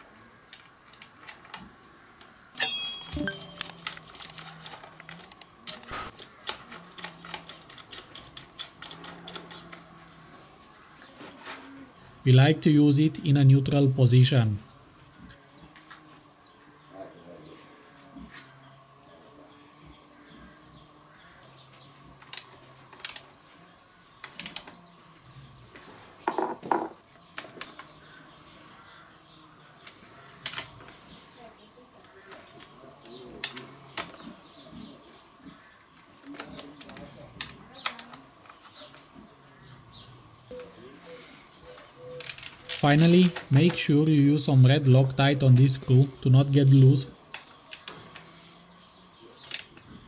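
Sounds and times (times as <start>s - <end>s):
metallic tool clicks and clinks: 2.6s - 5.4s
tools clattering: 2.6s - 5.8s.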